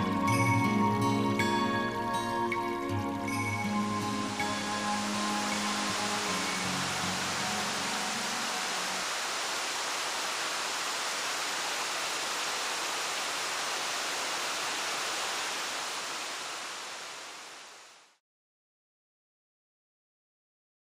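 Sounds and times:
waterfall rushing: 0:03.7 - 0:18.2.

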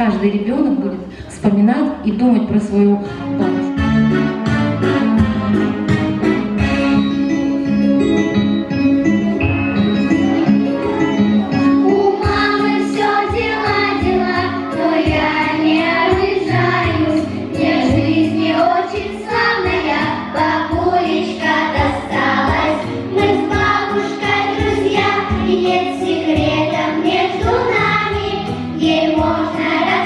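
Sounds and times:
instrumental accompaniment with beat: 0:03.1 - 0:30.0
children's choir singing: 0:09.1 - 0:30.0.

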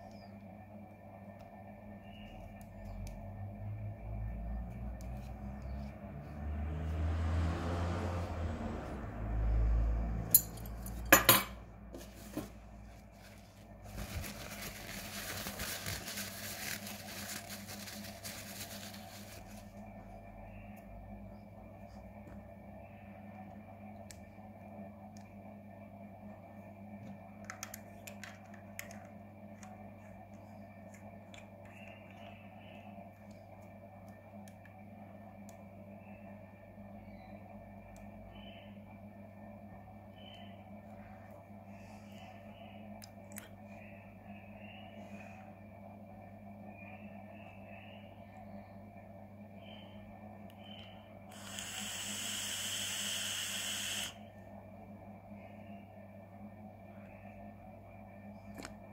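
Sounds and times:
low hum: 0:00.0 - 0:58.9
tissue rubbing papery rustle: 0:12.0 - 0:19.8.

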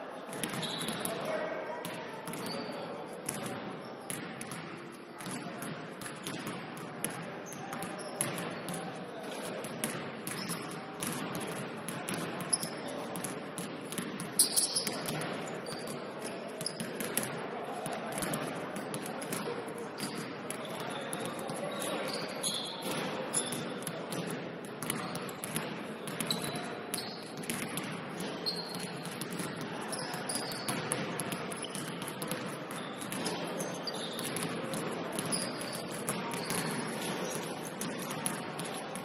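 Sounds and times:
crowd and player din: 0:00.0 - 0:39.0
shoe squeaks: 0:00.5 - 0:01.0, 0:02.4 - 0:02.8, 0:12.5 - 0:12.8, 0:14.4 - 0:16.0, 0:16.6 - 0:16.8, 0:20.7 - 0:23.6, 0:26.2 - 0:27.4, 0:28.4 - 0:29.0, 0:29.9 - 0:30.8, 0:33.6 - 0:34.5, 0:35.3 - 0:37.4
basketball bouncing: 0:09.6 - 0:15.9, 0:22.8 - 0:29.7, 0:30.3 - 0:38.8.

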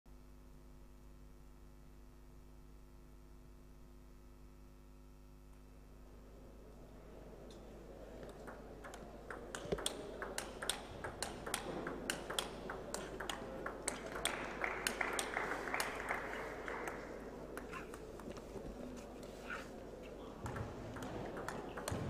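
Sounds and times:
table tennis ball rally: 0:08.2 - 0:16.0, 0:20.3 - 0:22.0.

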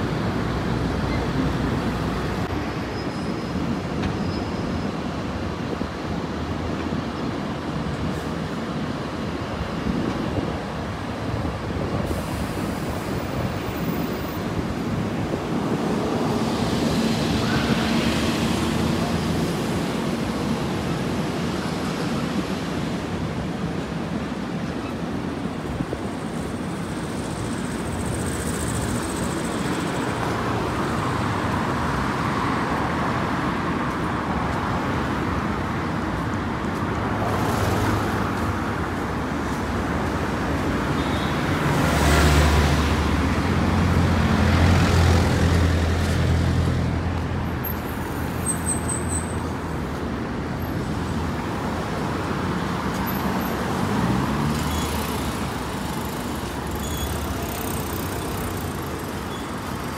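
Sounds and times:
cars driving past: 0:27.2 - 0:59.9.

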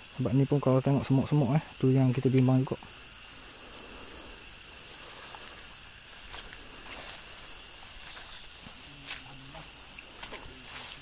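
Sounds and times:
crickets and cicadas chirring: 0:00.0 - 0:11.0.

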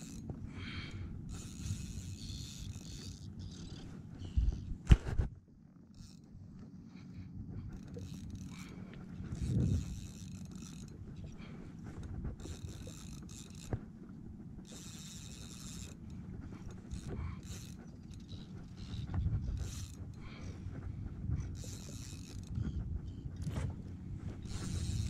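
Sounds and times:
fishing reel whirring and clicking: 0:00.0 - 0:04.7, 0:05.8 - 0:25.0
low rumble: 0:08.4 - 0:12.4, 0:16.0 - 0:25.0.

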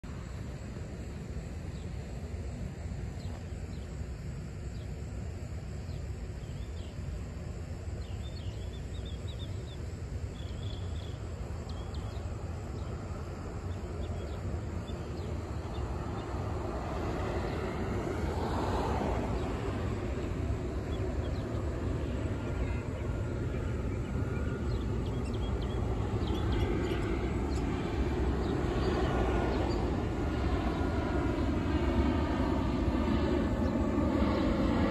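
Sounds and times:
jet engines rumbling: 0:00.0 - 0:34.9
birds chirping: 0:07.9 - 0:16.4, 0:19.3 - 0:31.5.

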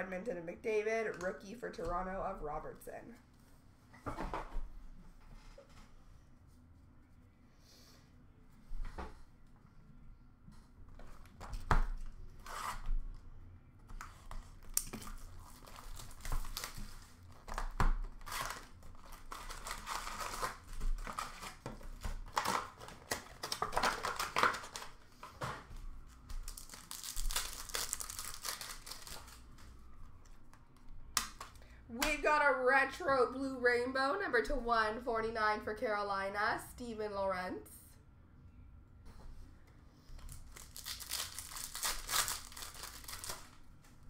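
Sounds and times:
card wrappers tearing and crinkling: 0:14.1 - 0:25.3, 0:26.1 - 0:29.7, 0:40.3 - 0:43.6.

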